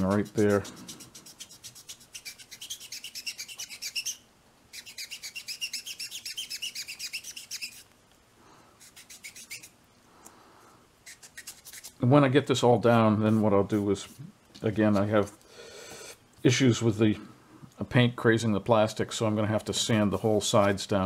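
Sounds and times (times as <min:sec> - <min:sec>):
sandpaper scratching on plastic: 0:00.0 - 0:07.9, 0:08.8 - 0:09.8, 0:11.0 - 0:12.0.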